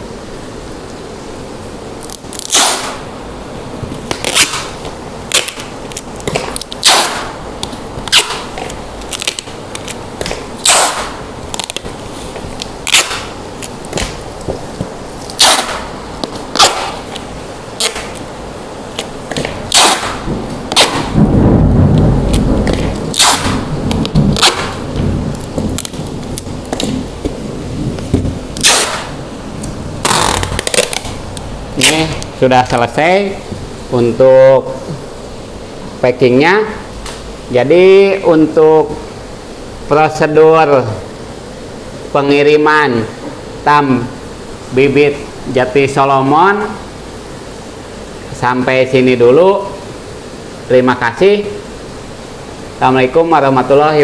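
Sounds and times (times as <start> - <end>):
packing tape ripping off roll: 2.0 - 3.0, 4.0 - 18.3, 18.9 - 21.2, 21.9 - 27.4, 28.0 - 29.2, 30.0 - 31.2, 31.8 - 32.2.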